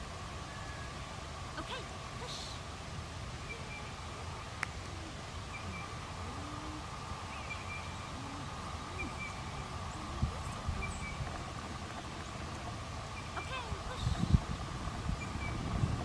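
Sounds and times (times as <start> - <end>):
outdoor background hiss: 0.0 - 16.0
faint bird chirps: 6.6 - 11.3.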